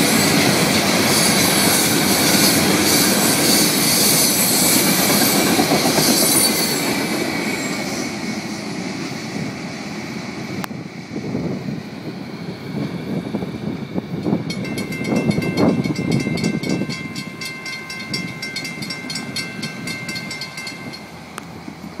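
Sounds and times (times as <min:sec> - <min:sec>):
freight train rumbling past: 0:00.0 - 0:22.0
railroad crossing bell ringing: 0:14.3 - 0:21.6.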